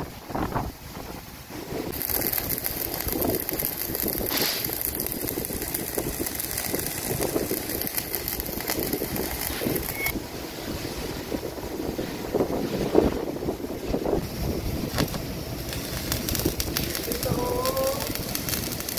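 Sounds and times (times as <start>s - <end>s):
arc welding crackling hiss: 1.6s - 10.2s, 14.0s - 18.9s.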